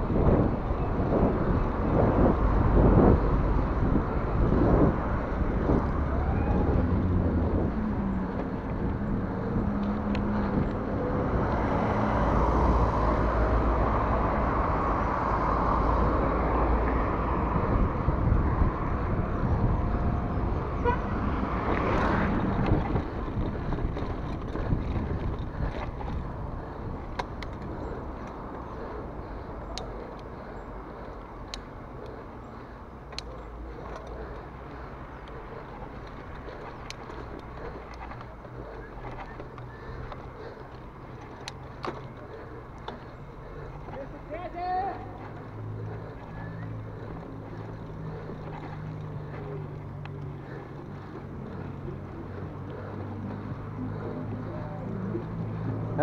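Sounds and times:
wind noise: 0:00.0 - 0:29.3
traffic passing: 0:00.0 - 0:56.0
sharp ticks: 0:29.7 - 0:44.1.

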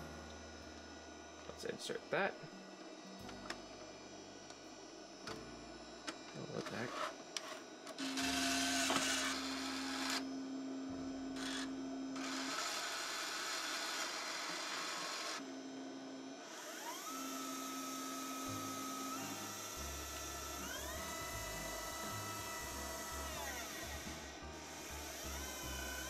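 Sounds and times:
motor whine rising in pitch: 0:00.0 - 0:26.0
steady hum: 0:00.0 - 0:26.0
tape drive mechanism whirring: 0:05.2 - 0:10.4, 0:11.3 - 0:15.7, 0:16.4 - 0:26.0.

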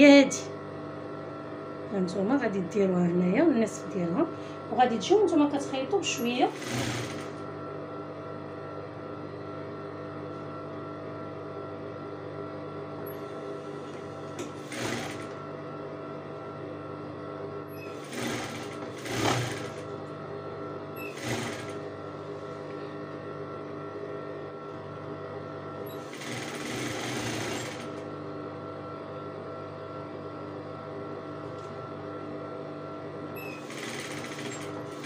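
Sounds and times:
sewing machine stitching: 0:06.2 - 0:07.4, 0:13.2 - 0:15.4, 0:17.8 - 0:19.9, 0:21.0 - 0:21.8, 0:25.9 - 0:28.0, 0:33.4 - 0:35.0.

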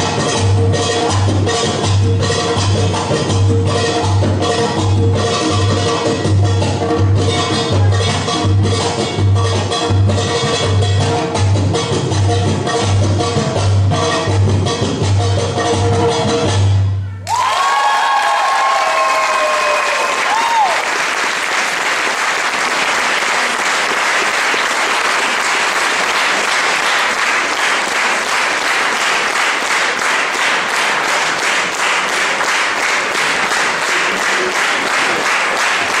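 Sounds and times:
high cheer: 0:17.2 - 0:28.4
audience applauding: 0:17.3 - 0:36.0.

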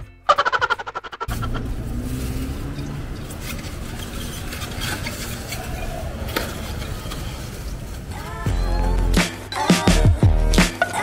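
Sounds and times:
low street rumble: 0:00.0 - 0:11.0
styrofoam food boxes clattering: 0:01.3 - 0:08.6.

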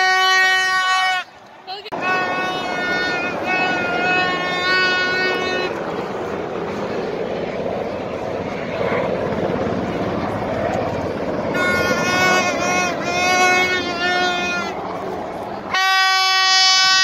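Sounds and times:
plastic fan horn blowing: 0:00.0 - 0:05.8, 0:11.5 - 0:14.8, 0:15.7 - 0:17.0
crowd hubbub outdoors: 0:00.0 - 0:17.0.

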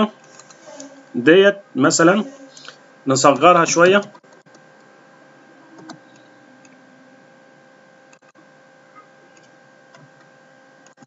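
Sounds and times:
low electrical hum: 0:00.0 - 0:11.0
computer mouse clicks: 0:00.2 - 0:00.6, 0:05.8 - 0:06.8, 0:09.3 - 0:11.0.

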